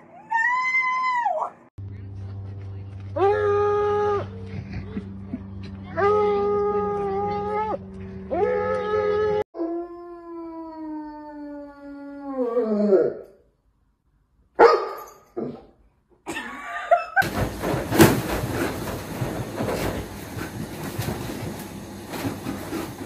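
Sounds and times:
rattling scraping noise with knocks: 0:17.2 - 0:23.0.

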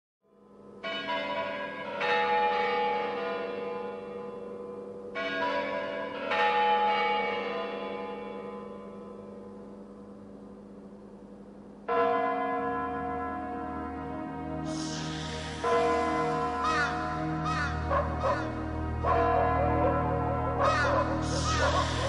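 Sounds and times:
deep bell ringing: 0:11.9 - 0:22.0
steady low hum: 0:15.0 - 0:22.0.

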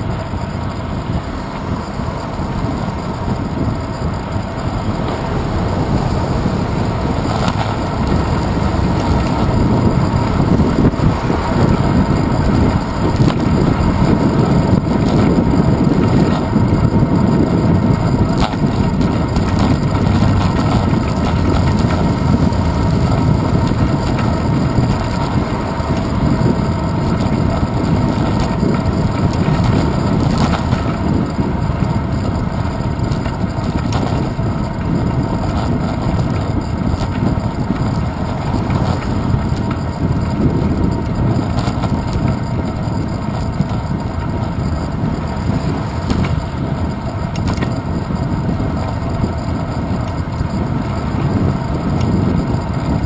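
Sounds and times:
bicycle tyre and road vibration: 0:00.0 - 0:53.0
wind rumble on microphone: 0:00.0 - 0:53.0.

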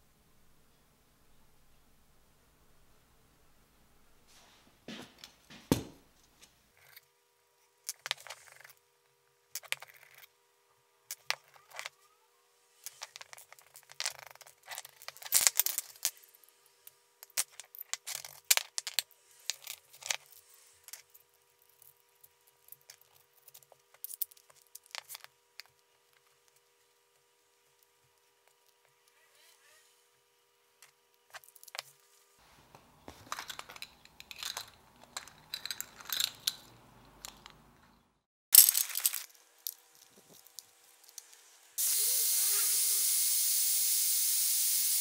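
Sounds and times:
faint steady hum: 0:00.0 - 0:38.2
small metal parts clinking: 0:12.8 - 0:16.2, 0:33.1 - 0:37.6, 0:38.6 - 0:41.4.

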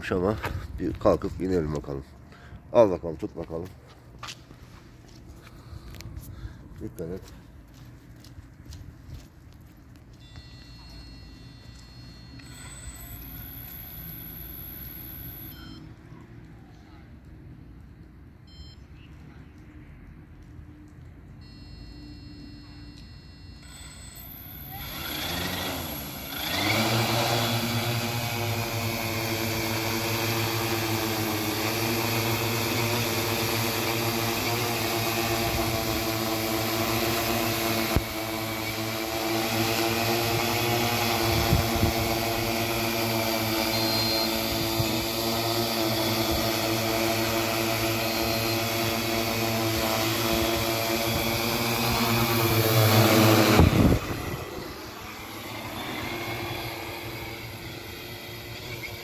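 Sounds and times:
drone propellers humming: 0:13.0 - 0:15.5, 0:24.2 - 0:59.0.

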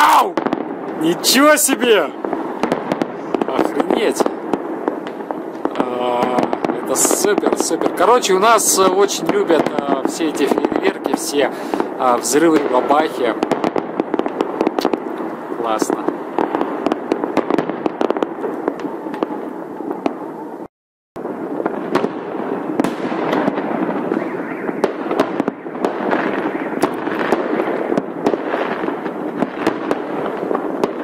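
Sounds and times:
firework crackle: 0:00.0 - 0:31.0
firework shells bursting: 0:00.3 - 0:20.2, 0:21.2 - 0:31.0.

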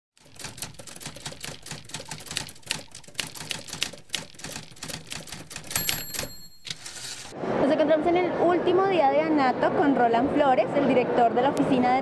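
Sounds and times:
typewriter keys clacking: 0:00.2 - 0:07.1.

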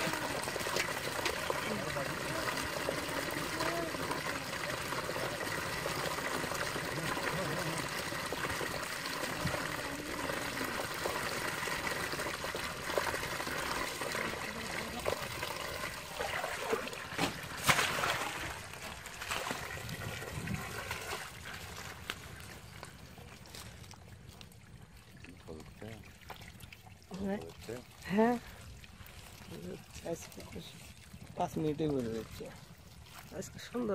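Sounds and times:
sharp splashes: 0:00.0 - 0:23.9
water running and splashing: 0:00.0 - 0:33.9.

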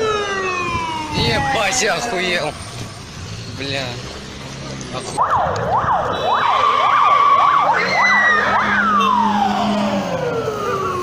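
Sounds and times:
police siren yelping: 0:00.0 - 0:02.8, 0:05.2 - 0:11.0.

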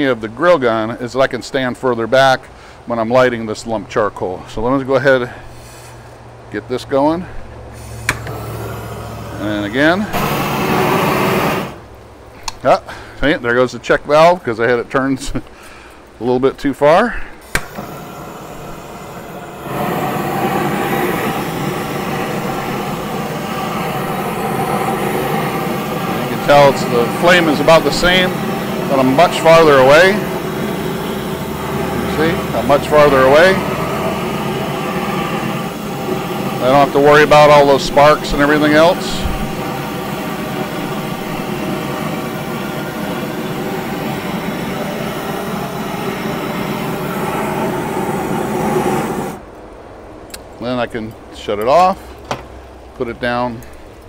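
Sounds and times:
propane torch flame jet: 0:07.2 - 0:13.4, 0:17.4 - 0:49.5.

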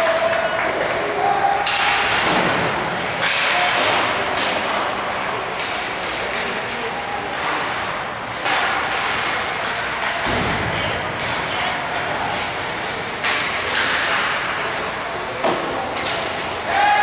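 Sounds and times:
sticks hitting puck and ice: 0:01.4 - 0:17.0
skate blades scraping ice: 0:11.4 - 0:17.0.

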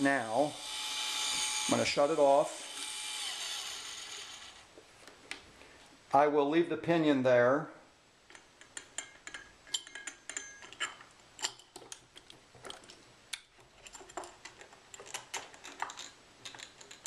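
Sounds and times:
small metal parts clicking: 0:08.3 - 0:17.0.

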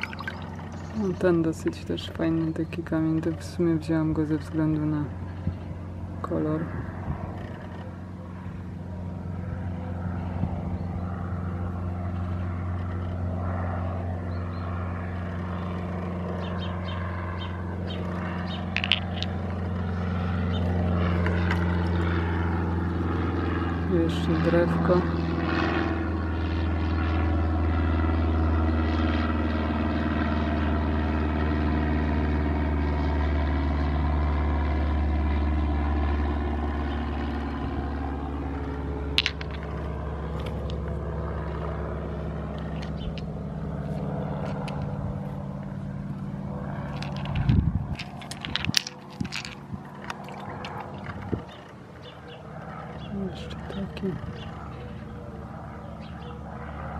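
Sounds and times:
engine drone: 0:00.0 - 0:56.9
sharp clicks and knocks: 0:46.9 - 0:51.7.

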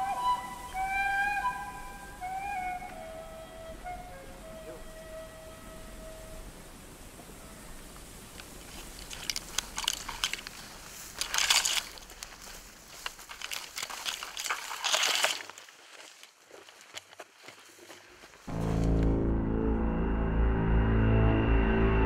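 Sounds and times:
footsteps crunching through dry grass: 0:07.8 - 0:19.3.

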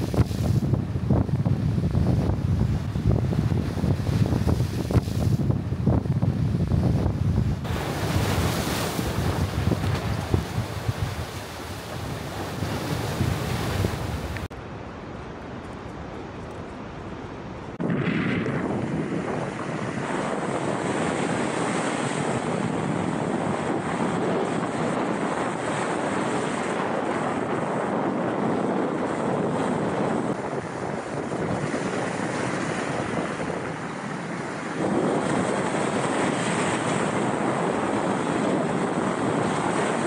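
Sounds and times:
waves crashing over rocks: 0:00.0 - 0:14.5
wind buffeting microphone: 0:00.0 - 0:40.0.

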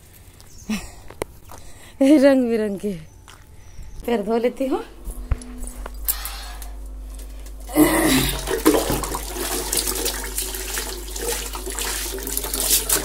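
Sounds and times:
water splashing on concrete floor: 0:08.3 - 0:13.0.

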